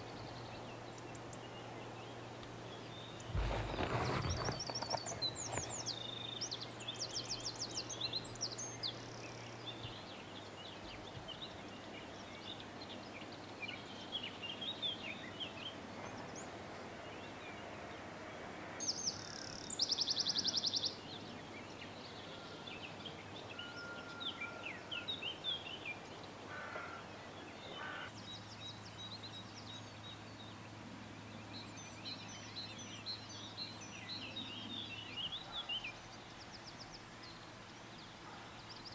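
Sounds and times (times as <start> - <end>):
songbirds chirping and singing: 0.1 - 17.6.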